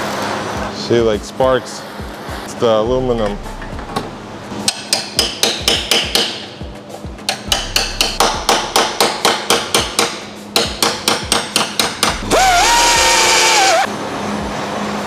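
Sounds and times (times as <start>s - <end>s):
hammer striking metal panel: 3.8s - 6.5s, 7.2s - 12.3s.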